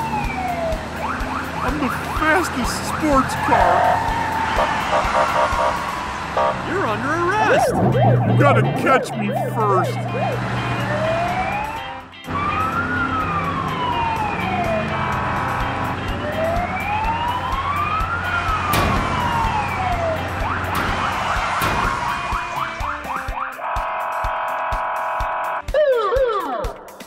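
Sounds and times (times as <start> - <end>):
vehicle engine drone: 0.0 - 23.3
police siren wailing: 0.0 - 26.9.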